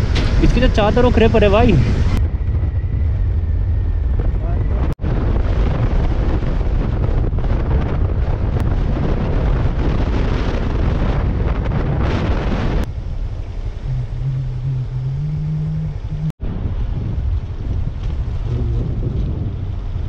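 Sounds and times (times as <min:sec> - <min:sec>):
wind rushing over microphone: 0:00.0 - 0:20.0
motorcycle engine: 0:12.9 - 0:16.3.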